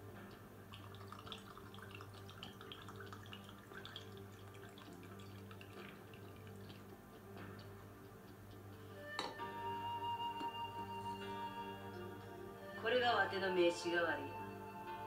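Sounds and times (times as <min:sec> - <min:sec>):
wine pouring into a glass: 0:00.7 - 0:07.0.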